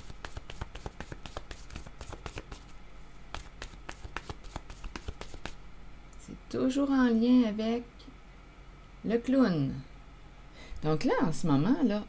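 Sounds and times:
deck of cards shuffling: 0.0 - 5.6.

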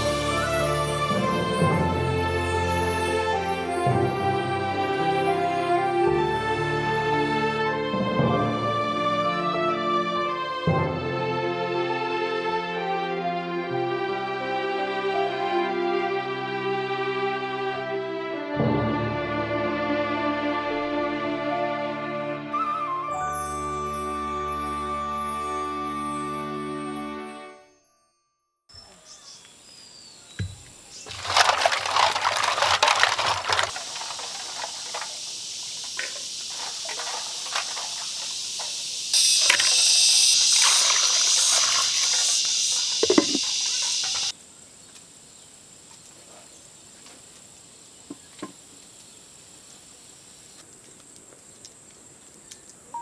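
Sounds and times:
steady hiss: 29.1 - 53.0
wood fire crackling: 31.0 - 46.2
water rushing and splashing: 31.2 - 44.3.

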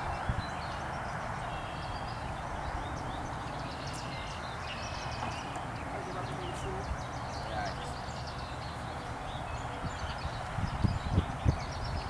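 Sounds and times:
songbirds chirping: 0.0 - 12.0
honeybees humming: 1.3 - 10.4.

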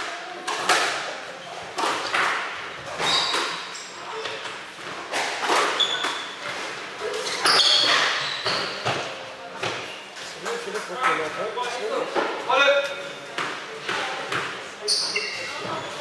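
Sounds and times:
squash ball hitting racket and walls: 0.0 - 10.0, 13.3 - 16.0
shoes squeaking on wooden floor: 2.8 - 4.5, 5.6 - 9.2, 14.8 - 16.0.

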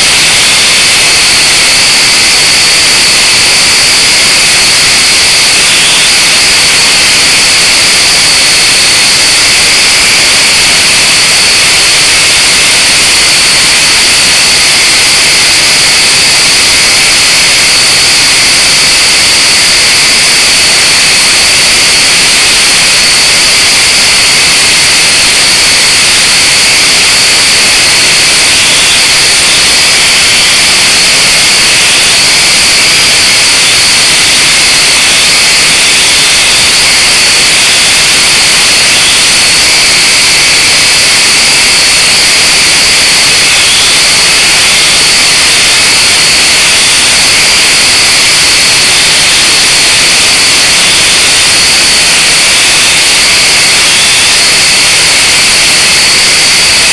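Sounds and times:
quadcopter motors whining: 0.0 - 56.9.

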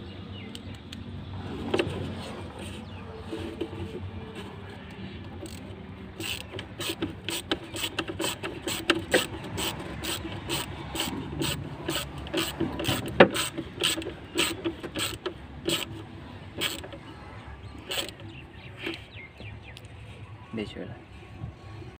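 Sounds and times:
screwdriver clicking on hose clamp: 6.2 - 15.9, 16.6 - 16.9.

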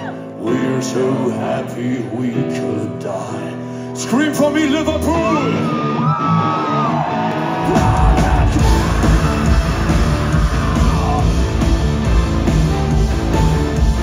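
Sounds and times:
metal band playing loud: 4.4 - 14.0.

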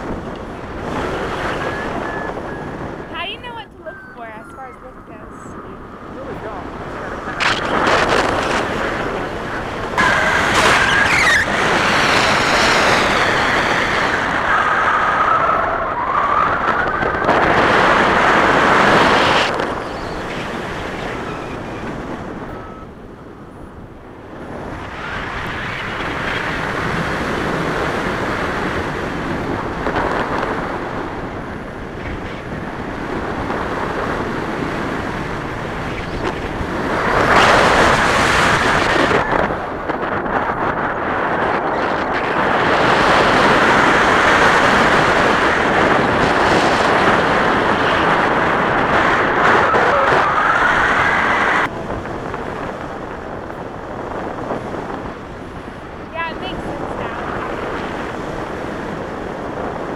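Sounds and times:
wind noise on microphone: 0.0 - 59.9.

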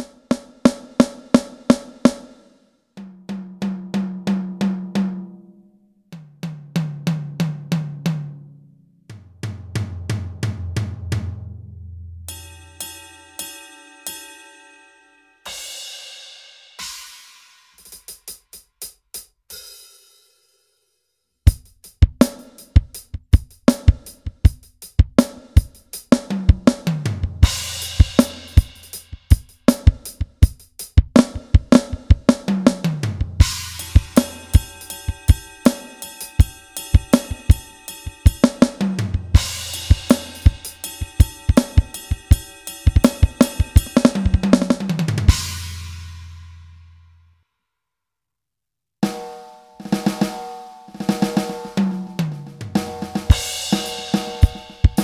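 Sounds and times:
drum groove of kick snare and cymbals: 0.0 - 5.2, 15.5 - 20.5, 21.4 - 46.8, 49.0 - 55.0
drum pad taps: 33.3 - 45.3.

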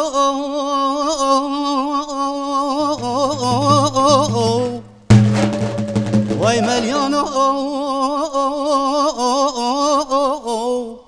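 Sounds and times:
instrumental accompaniment: 2.9 - 7.6
drum stroke: 3.0 - 7.6
man singing folk song: 6.4 - 11.0.

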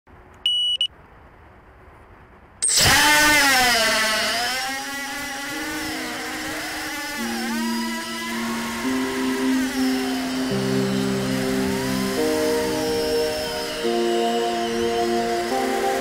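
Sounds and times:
short electronic beep: 0.4 - 0.9
quadcopter motors whining: 2.6 - 16.0
music with held synth notes: 5.0 - 16.0.

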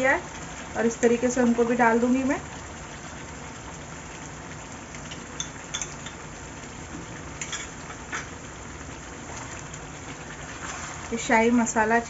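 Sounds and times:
gravy bubbling in a pot: 0.0 - 12.0
spoon clinking against pot: 5.4 - 6.2.

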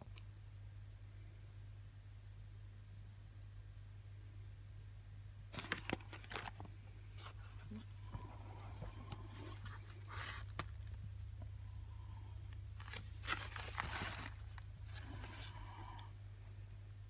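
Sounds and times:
steady low hum: 0.0 - 17.0
fabric bag rustling: 5.5 - 11.0, 12.8 - 15.7.

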